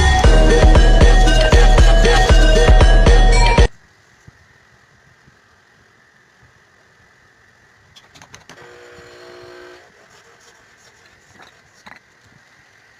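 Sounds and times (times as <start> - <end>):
steady mechanical hum: 3.7 - 12.9
faint workshop background: 5.0 - 12.9.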